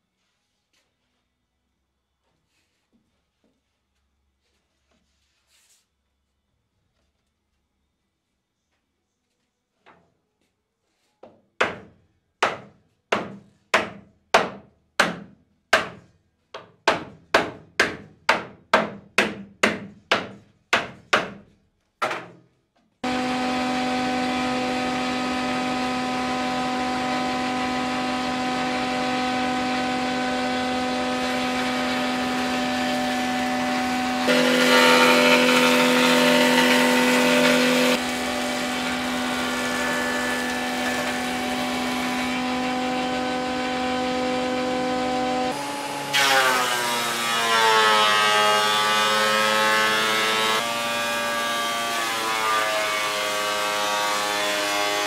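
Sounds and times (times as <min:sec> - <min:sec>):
jointer running: 0:23.0 - 0:47.8
board cut by jointer: 0:23.0 - 0:55.0.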